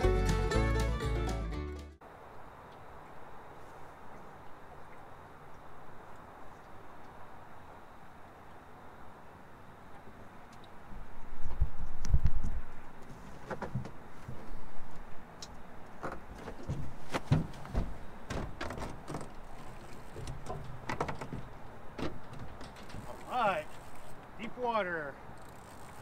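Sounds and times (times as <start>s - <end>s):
knocks and clunks on boat deck: 13.0s - 14.6s, 15.9s - 23.2s.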